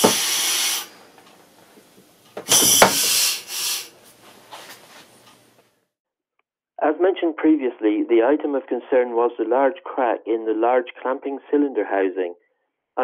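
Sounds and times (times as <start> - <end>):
compressed air hissing: 0.0 - 1.1, 2.4 - 4.0
sharp clack of drill: 2.4 - 3.2.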